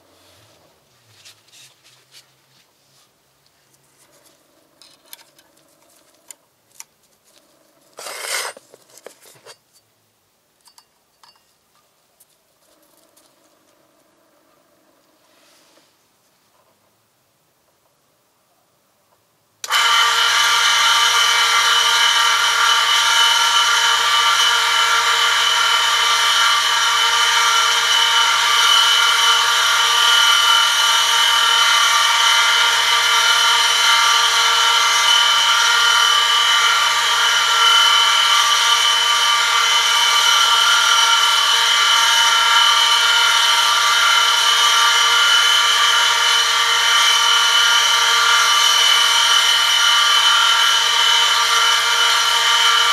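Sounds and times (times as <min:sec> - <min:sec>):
high-pitched metal screech: 0:08.0 - 0:08.6
electric motor hum: 0:19.6 - 0:52.9.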